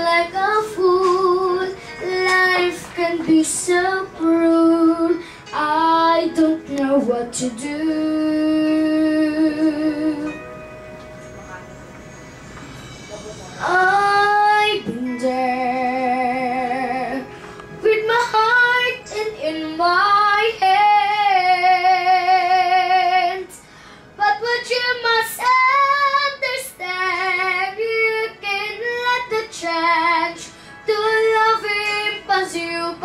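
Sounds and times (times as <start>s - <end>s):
woman singing with vibrato: 13.6s - 23.6s.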